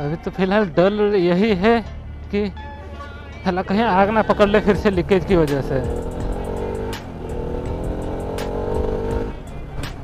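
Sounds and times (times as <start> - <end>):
motorcycle engine cruising: 3.9 - 10.0.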